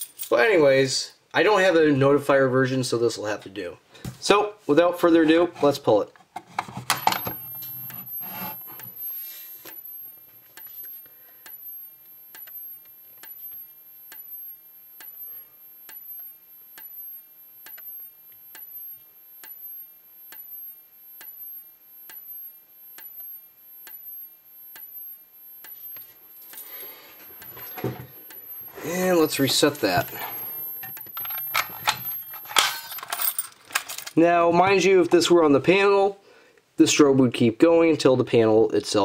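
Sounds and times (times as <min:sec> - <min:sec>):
faint high-pitched whine: 0:06.9 - 0:39.0
strobe clicking: 0:08.8 - 0:32.3.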